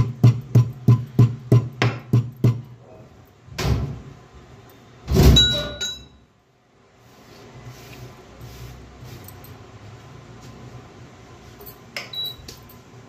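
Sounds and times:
metal pestle pounding in mortar: 0:00.0 - 0:02.7.

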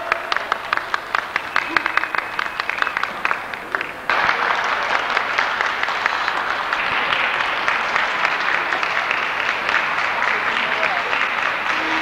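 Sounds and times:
crowd applause: 0:00.0 - 0:12.0.

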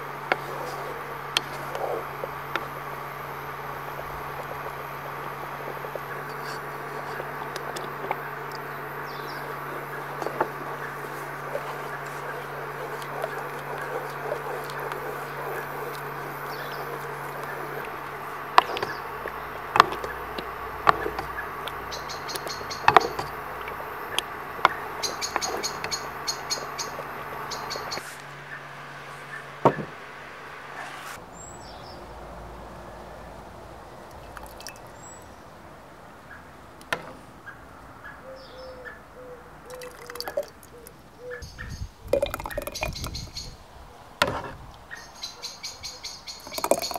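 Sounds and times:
spoon stirring thick sauce: 0:00.0 - 0:28.0, 0:44.2 - 0:44.6, 0:46.4 - 0:46.9
low hum: 0:00.0 - 0:37.9
bird chirps: 0:08.2 - 0:18.0, 0:18.6 - 0:23.4, 0:24.7 - 0:28.6, 0:37.4 - 0:43.6, 0:44.9 - 0:46.9
ladle clinking glass jar: 0:46.4 - 0:46.9.

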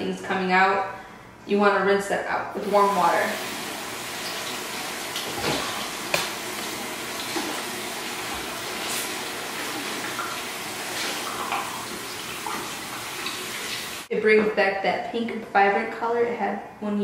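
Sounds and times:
tap water running into sink: 0:02.7 - 0:14.1
sponge being squeezed: 0:05.2 - 0:07.8.

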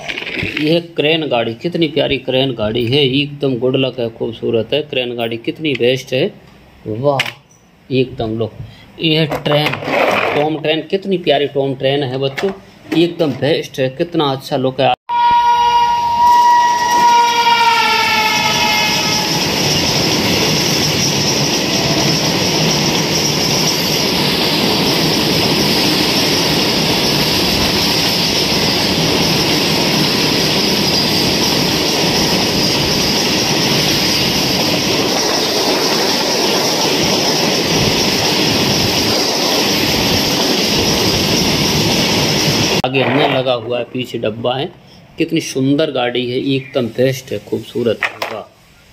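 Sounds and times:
locomotive horn: 0:15.1 - 0:19.6
freight wagons rumbling and clattering: 0:19.4 - 0:44.1.

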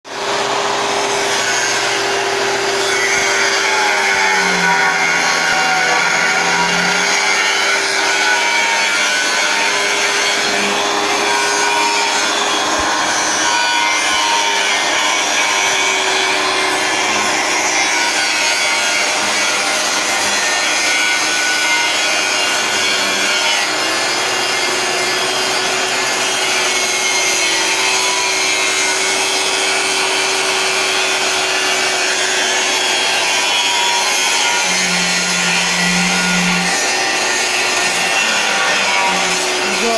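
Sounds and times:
angle grinder grinding steel: 0:00.1 - 0:39.9.

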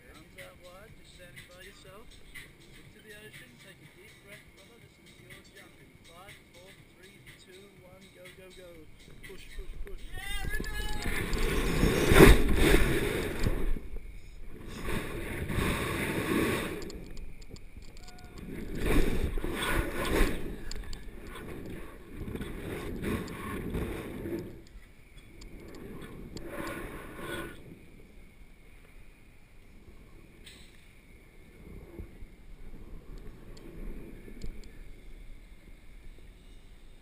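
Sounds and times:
wind rushing over microphone: 0:08.8 - 0:37.0.

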